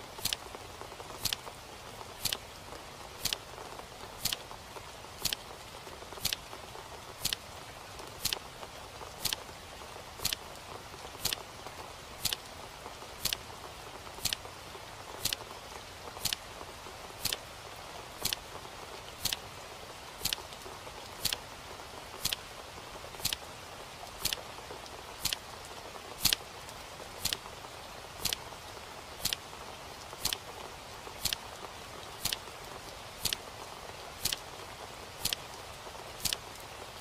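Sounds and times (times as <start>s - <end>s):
faint steady hiss: 0.0s - 37.0s
clock ticking: 0.2s - 0.4s, 1.2s - 1.4s, 2.2s - 2.4s, 3.2s - 3.4s, 4.2s - 4.4s, 5.2s - 5.4s, 6.2s - 6.4s, 7.2s - 7.4s, 9.2s - 9.4s, 10.2s - 10.4s, 11.2s - 11.4s, 12.2s - 12.5s, 13.2s - 13.4s, 14.2s - 14.4s, 15.2s - 15.4s, 16.2s - 16.4s, 17.2s - 17.4s, 18.2s - 18.4s, 19.2s - 19.4s, 20.2s - 20.4s, 21.2s - 21.4s, 22.2s - 22.4s, 23.2s - 23.4s, 25.2s - 25.4s, 26.2s - 26.4s, 27.2s - 27.4s, 28.2s - 28.4s, 29.2s - 29.4s, 30.2s - 30.4s, 31.2s - 31.4s, 32.2s - 32.4s, 33.2s - 33.4s, 34.2s - 34.4s, 36.2s - 36.4s.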